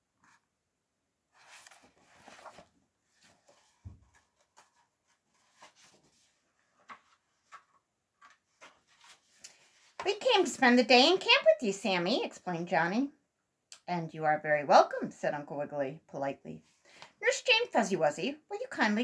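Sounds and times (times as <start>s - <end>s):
book rustling: 1.3s - 10.3s.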